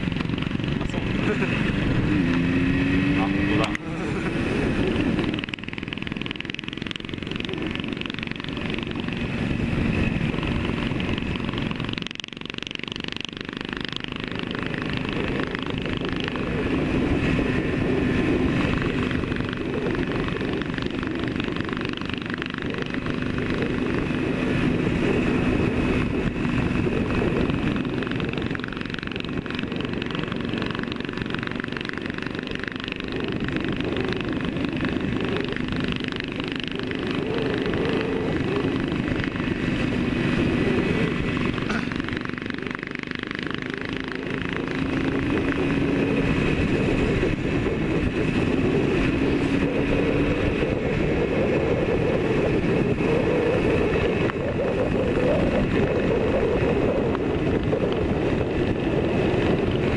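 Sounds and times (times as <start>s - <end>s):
motorcycle engine running: 0.0s - 59.9s
wind noise: 0.0s - 59.9s.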